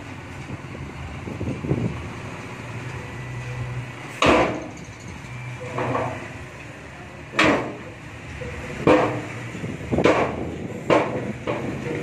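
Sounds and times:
truck engine running: 0:00.0 - 0:12.0
tailgate banging against metal: 0:07.3 - 0:07.9, 0:08.8 - 0:12.0.

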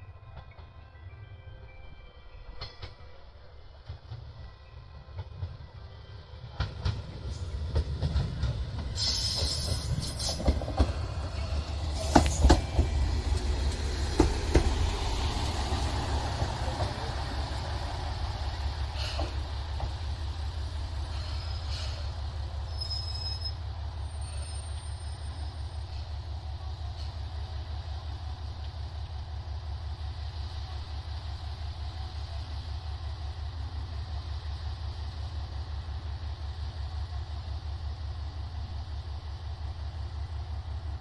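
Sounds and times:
train wheels knocking on track: 0:06.6 - 0:11.3, 0:11.9 - 0:20.2
brake squeal: 0:09.0 - 0:10.5, 0:21.0 - 0:26.2.

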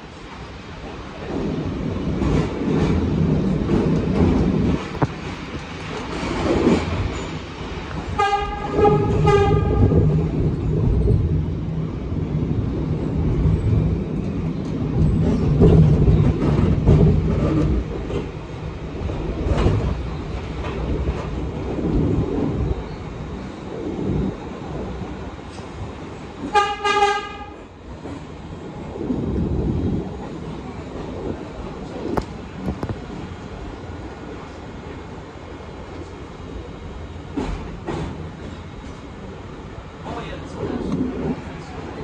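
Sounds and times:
subway train wheels rumbling on rail: 0:00.0 - 0:42.0
train horn blasts: 0:08.1 - 0:10.1, 0:26.4 - 0:27.6.

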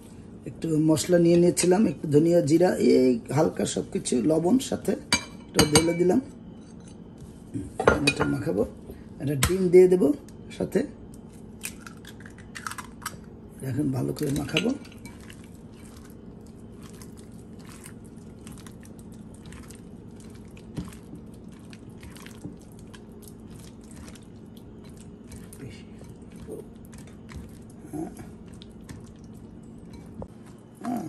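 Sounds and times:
steady low hum: 0:00.0 - 0:31.0
hands squishing mashed potato: 0:13.8 - 0:31.0.

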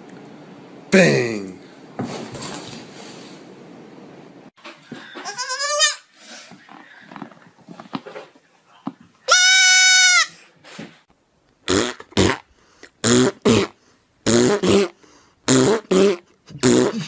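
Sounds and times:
goat kid bleating: 0:05.2 - 0:06.1, 0:09.3 - 0:10.3.

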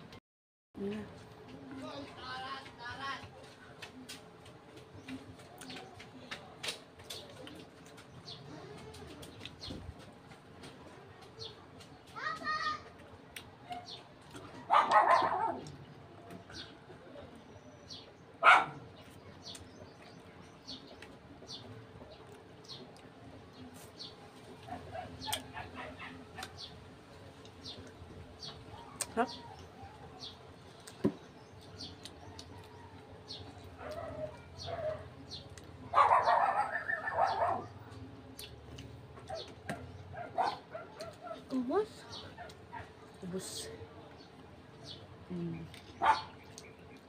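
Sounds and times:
small birds chirping: 0:00.8 - 0:47.0
dog barking: 0:14.6 - 0:15.7, 0:18.4 - 0:18.8, 0:33.8 - 0:35.2, 0:35.9 - 0:37.8, 0:39.3 - 0:41.5, 0:46.0 - 0:46.4.

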